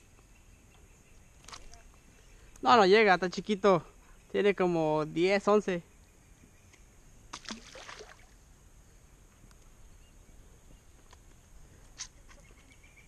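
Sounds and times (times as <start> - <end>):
water splash: 7.3 - 8.4.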